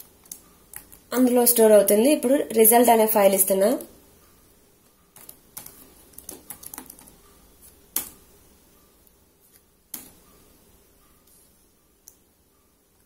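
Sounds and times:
keyboard typing: 5.2 - 7.2.

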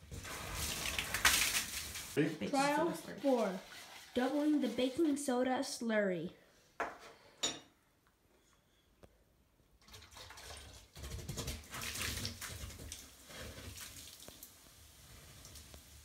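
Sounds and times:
liquid pouring and splashing: 0.0 - 5.2, 9.8 - 16.0
mixture fizzing and foaming: 0.0 - 5.8, 9.8 - 16.0.

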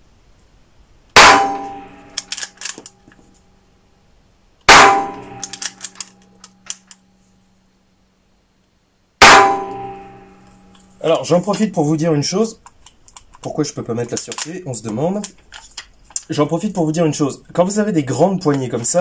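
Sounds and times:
rifle shots with ringing tail: 1.2 - 2.2, 4.7 - 5.7, 9.2 - 10.4.

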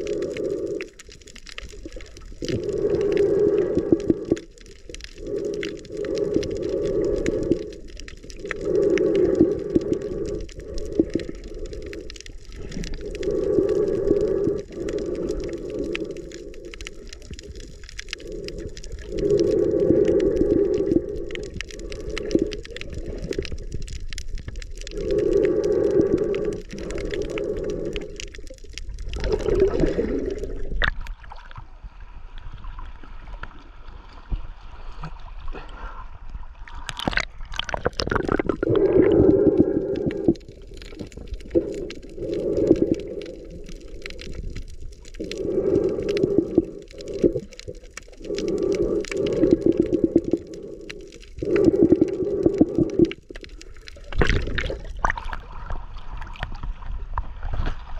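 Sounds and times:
breathing through a snorkel: 0.0 - 31.0, 37.6 - 55.4
lapping water hiss: 5.2 - 23.4, 24.9 - 28.5, 45.2 - 53.8.

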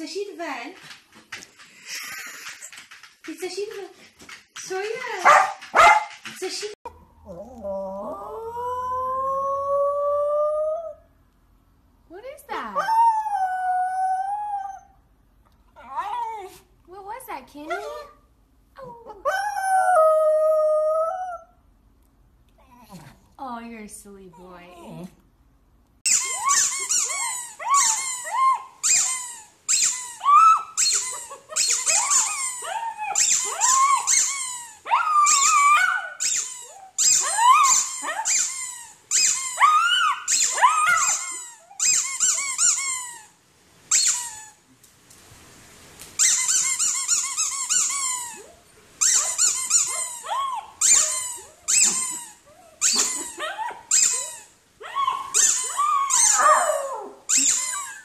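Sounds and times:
rubber squeaky toy squeaking: 26.0 - 44.6, 46.2 - 54.5, 55.4 - 56.4, 57.3 - 58.0
small dog making high sounds: 26.1 - 38.6, 46.2 - 58.0.

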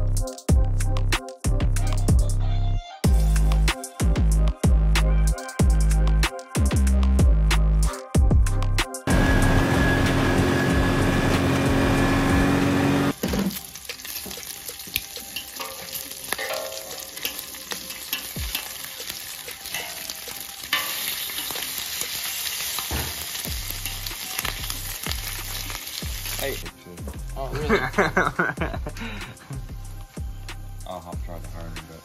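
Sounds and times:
utility vehicle engine running: 9.1 - 13.2
bacon sizzling on a griddle: 13.1 - 26.7
metal tongs clicking: 14.9 - 21.7.

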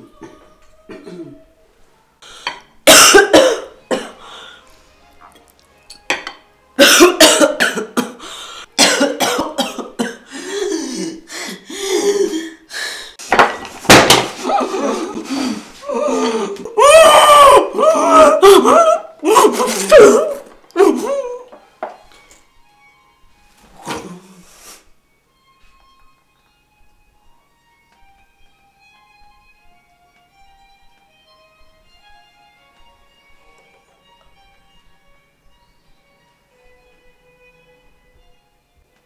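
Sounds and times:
woman coughing and gasping: 0.2 - 1.4, 2.8 - 4.2, 6.8 - 8.2, 8.8 - 10.3.

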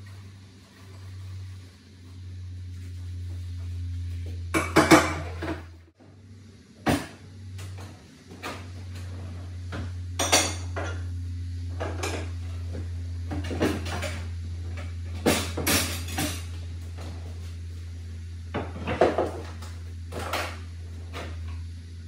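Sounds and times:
steady low hum: 0.0 - 22.0
dishes and cutlery clattering: 15.2 - 16.6.

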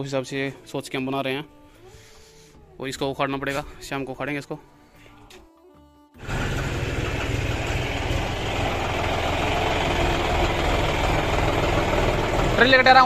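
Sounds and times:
tractor diesel engine running: 6.2 - 13.0.

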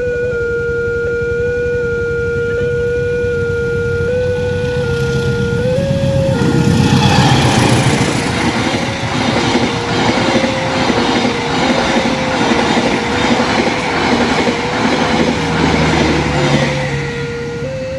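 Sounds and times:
level crossing electronic alarm: 3.4 - 17.9
train wheels clattering over rails: 6.3 - 17.0.

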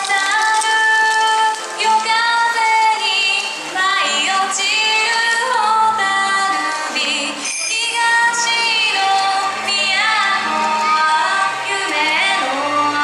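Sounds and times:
dance music accompaniment: 0.0 - 13.0
woman singing: 0.0 - 13.0.

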